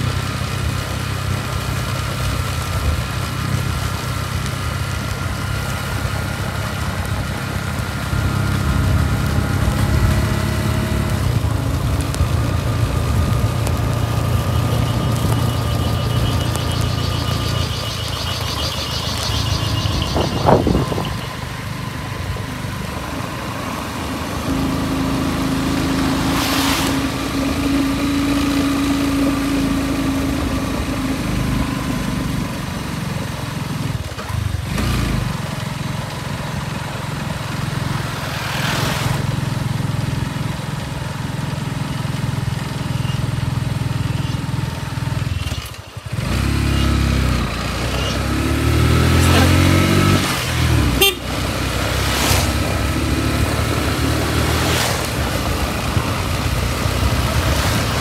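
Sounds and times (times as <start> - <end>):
motorbike engine running: 0.0 - 38.4, 39.3 - 58.0
wind rushing over microphone: 11.1 - 23.5.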